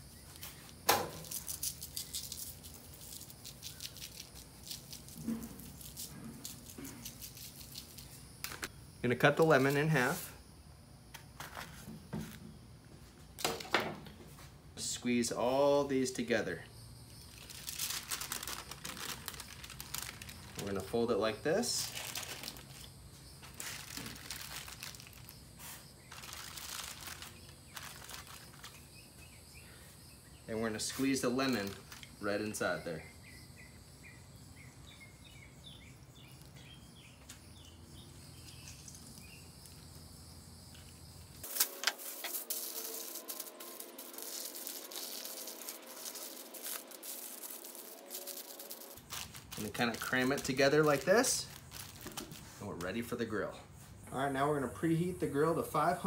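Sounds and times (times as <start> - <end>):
aluminium foil crinkling: 0.3 - 8.7, 17.2 - 28.9, 31.0 - 32.2, 41.4 - 53.1
salt shaker rattling: 1.2 - 8.1, 41.4 - 50.6.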